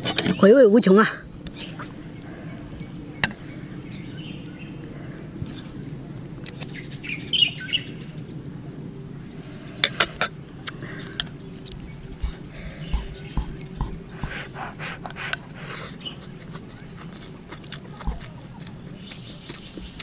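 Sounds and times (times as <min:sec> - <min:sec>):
small birds chirping: 0:00.0 - 0:08.5, 0:10.4 - 0:20.0
steady low hum: 0:00.8 - 0:20.0.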